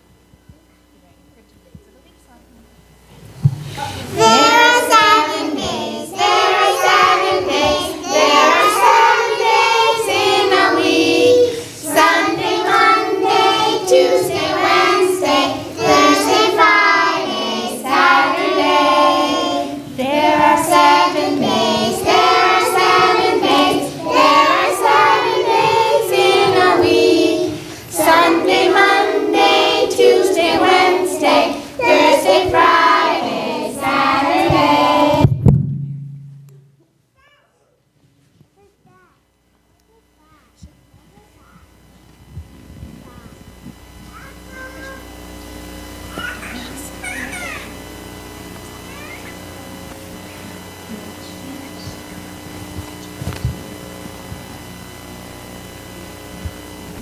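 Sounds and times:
children singing: 4.2s - 35.3s.

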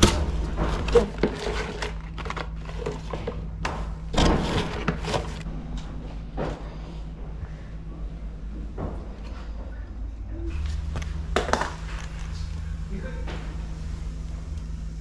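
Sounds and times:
cardboard packaging rustling: 0.0s - 5.5s
steady low hum: 0.0s - 15.0s.

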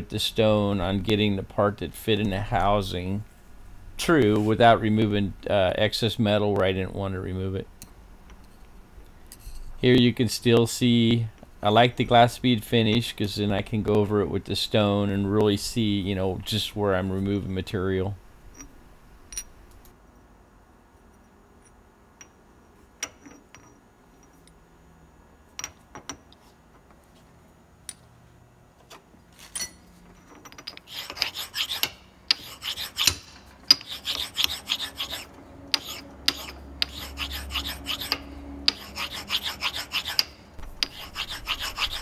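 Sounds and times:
sharpening stone rasping on steel: 30.8s - 42.0s.

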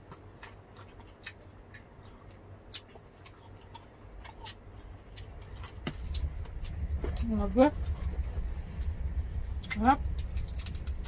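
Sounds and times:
people chewing: 0.0s - 6.9s
food crunching: 0.0s - 7.2s, 9.5s - 11.0s.

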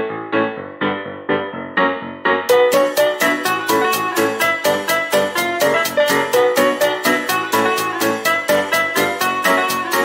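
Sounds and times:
upbeat background music: 2.4s - 10.0s.

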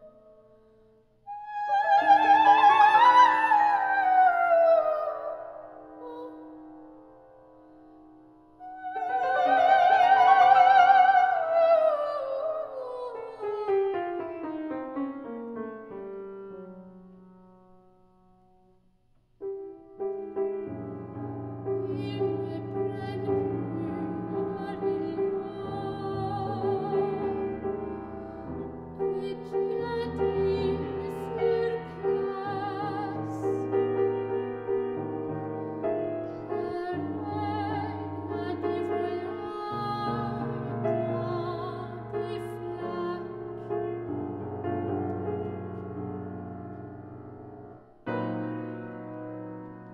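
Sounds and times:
piano: 0.0s - 49.9s
woman singing with vibrato: 1.3s - 6.6s, 8.6s - 14.0s, 21.8s - 27.6s, 29.1s - 33.7s, 36.5s - 43.4s.

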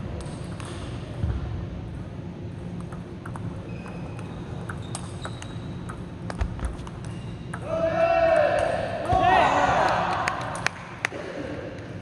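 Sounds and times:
sports hall hum: 0.0s - 12.0s
table tennis balls clicking: 2.8s - 7.6s.

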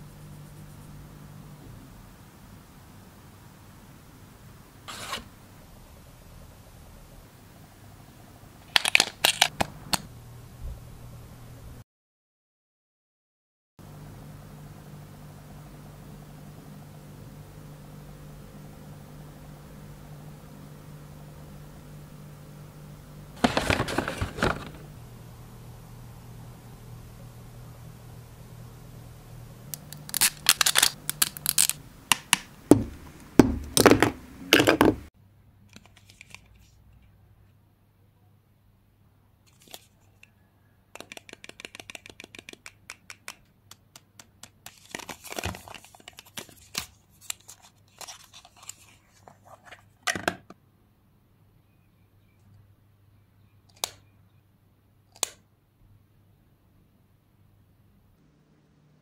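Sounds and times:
packaging tearing and crackling: 8.7s - 9.6s, 29.8s - 31.8s.

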